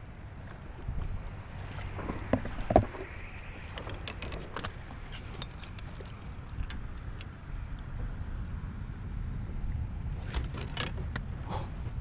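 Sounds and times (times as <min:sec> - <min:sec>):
wind rumble on microphone: 0:00.0 - 0:12.0
water sloshing and splashing: 0:01.5 - 0:07.4.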